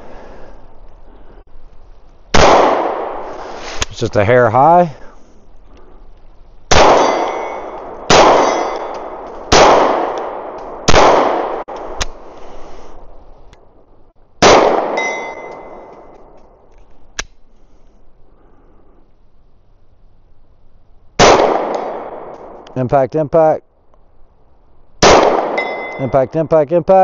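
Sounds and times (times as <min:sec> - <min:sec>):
pistol shots echoing: 0:02.3 - 0:03.2, 0:06.7 - 0:11.7, 0:14.4 - 0:16.1, 0:21.2 - 0:22.6, 0:25.0 - 0:26.1
steel target plates ringing: 0:07.0 - 0:07.7, 0:08.4 - 0:09.0, 0:14.9 - 0:16.0, 0:25.6 - 0:26.2.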